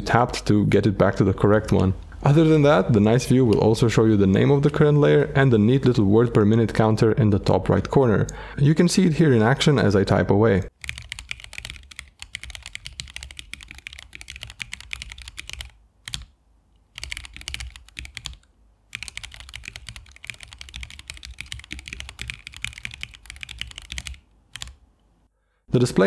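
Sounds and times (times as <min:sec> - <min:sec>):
mechanical keyboard typing: 0:10.8 - 0:16.3, 0:16.9 - 0:24.8.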